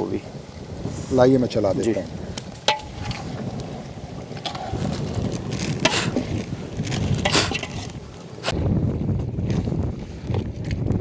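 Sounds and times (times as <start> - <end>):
wind rumbling on microphone: 0.0 - 11.0
ladle scraping and clinking pot: 2.6 - 3.2, 7.2 - 7.9.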